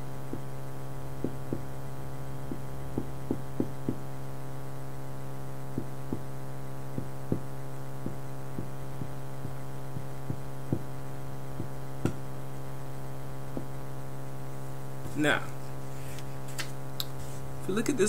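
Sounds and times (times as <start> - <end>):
electrical hum: 0.0 - 18.0
marker pen tapping on whiteboard: 2.5 - 4.0, 7.0 - 10.9.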